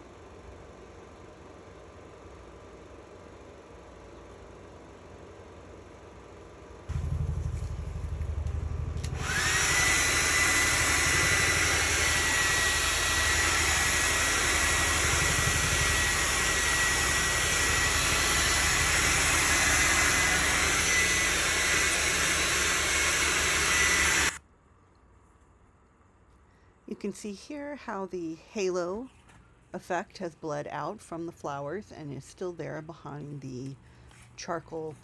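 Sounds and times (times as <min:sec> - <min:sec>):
electric blower motor whining: 0:06.9 - 0:24.4.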